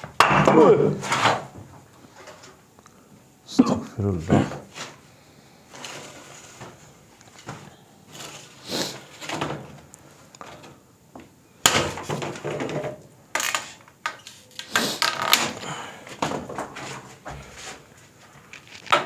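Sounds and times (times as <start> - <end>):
debris knocking and scraping: 0.0 - 2.6, 11.6 - 14.2, 15.1 - 19.0.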